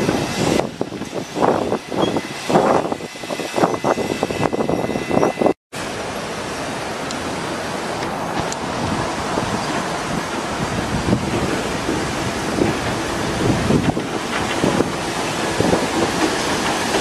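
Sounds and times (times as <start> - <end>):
steady rushing noise: 0.0 - 17.0
train wheels clattering: 11.2 - 17.0.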